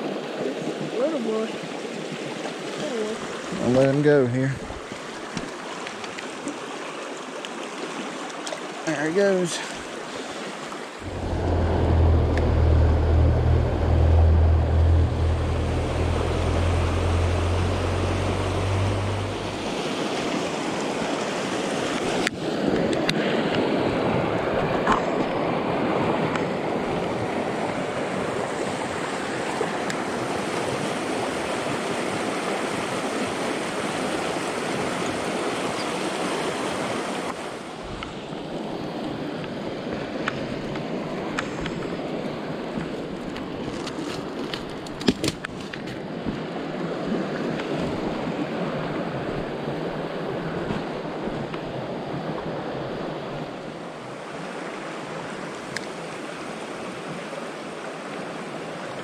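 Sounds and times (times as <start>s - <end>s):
stream rushing over rocks: 0.0s - 12.0s, 15.1s - 42.6s
low rumble: 11.0s - 19.9s.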